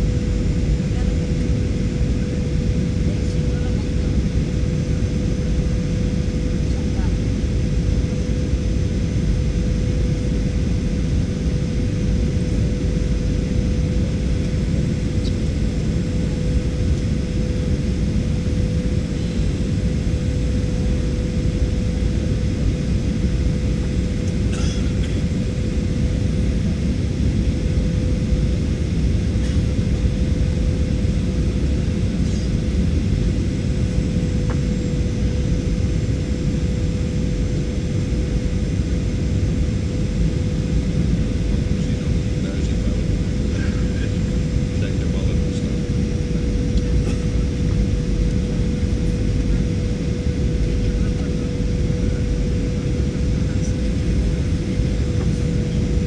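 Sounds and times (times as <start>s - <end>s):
jet engines running: 0.0s - 56.0s
steady cabin hum: 0.0s - 56.0s.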